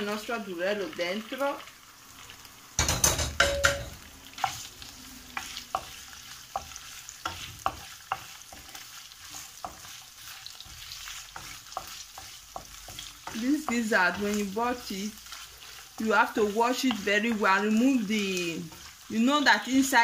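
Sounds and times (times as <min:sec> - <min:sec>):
food sizzling in a frying pan: 0:00.0 - 0:20.0
wooden spoon tapping a pan: 0:02.8 - 0:04.6, 0:05.4 - 0:10.0, 0:10.6 - 0:14.5, 0:16.0 - 0:18.9.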